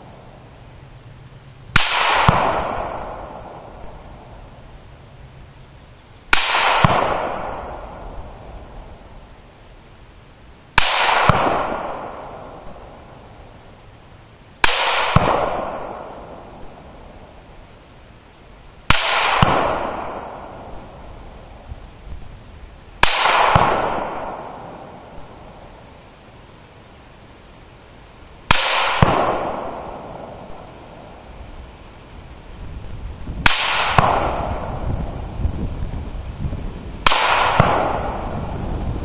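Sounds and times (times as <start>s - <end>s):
rifle shots: 1.8s - 4.3s, 6.3s - 8.5s, 10.8s - 13.3s, 14.6s - 17.2s, 18.9s - 21.1s, 23.0s - 25.4s, 28.5s - 31.1s, 33.4s - 34.8s, 37.0s - 38.4s
rolling gunshot echo: 1.8s - 4.3s, 6.4s - 8.4s, 10.8s - 13.0s, 14.6s - 16.8s, 18.9s - 21.0s, 23.0s - 25.4s, 28.5s - 31.0s, 33.4s - 34.8s, 37.0s - 38.4s
sharp echo crack: 1.8s - 4.4s, 6.3s - 8.9s, 10.8s - 13.4s, 14.6s - 17.4s, 18.9s - 21.6s, 23.0s - 25.8s, 28.5s - 31.2s, 33.4s - 35.2s, 37.0s - 38.6s.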